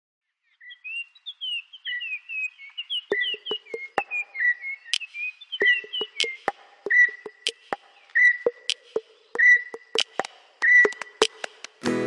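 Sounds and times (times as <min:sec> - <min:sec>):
birds chirping and whistling: 0:00.4 - 0:11.6
rhythmic percussive hits: 0:03.1 - 0:04.1, 0:05.6 - 0:11.8.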